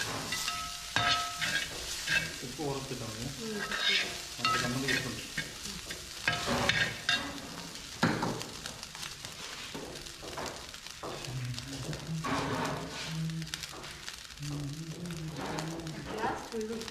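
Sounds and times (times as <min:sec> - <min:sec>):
ladle scraping steel pan: 0:00.0 - 0:02.4, 0:03.6 - 0:05.2.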